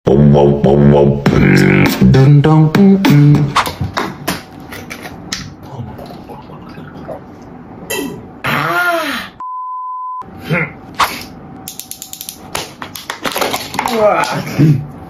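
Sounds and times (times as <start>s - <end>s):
steady bleep tone: 9.4s - 10.3s.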